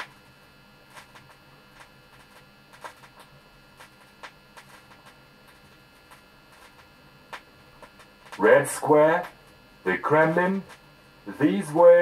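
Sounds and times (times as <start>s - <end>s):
vinyl clicks and pops: 0.0s - 8.5s
faint steady hum: 0.0s - 12.0s.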